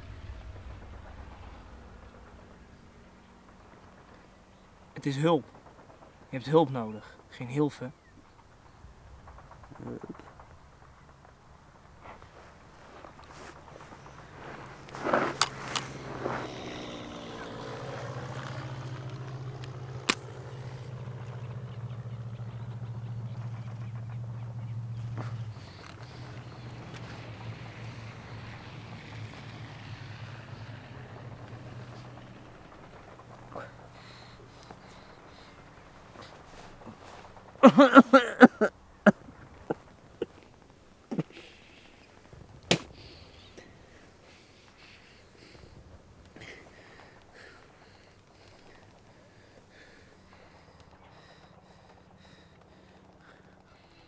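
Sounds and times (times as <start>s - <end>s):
low fluttering engine drone: 0.0s - 54.0s
man coughing: 37.6s - 38.7s.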